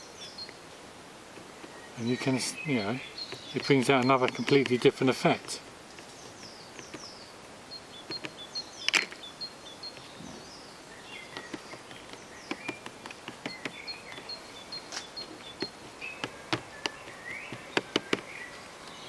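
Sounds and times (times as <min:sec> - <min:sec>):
light taps and clicks: 0:01.3 - 0:07.1, 0:08.0 - 0:09.2, 0:11.3 - 0:19.0.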